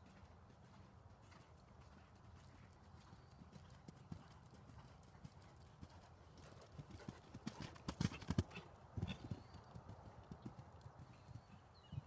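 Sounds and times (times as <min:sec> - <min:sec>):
horse hoofbeats on sand: 0:00.0 - 0:12.0.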